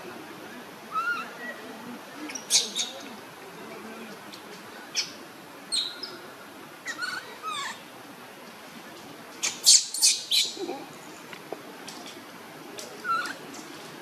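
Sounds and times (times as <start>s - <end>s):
baby monkey crying: 6.9s - 7.8s.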